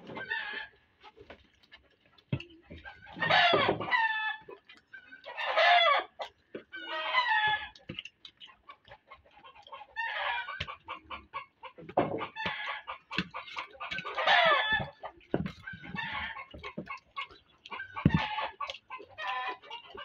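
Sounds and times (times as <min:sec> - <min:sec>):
chickens clucking: 0:00.0 - 0:20.0
rooster crowing: 0:14.2 - 0:14.9.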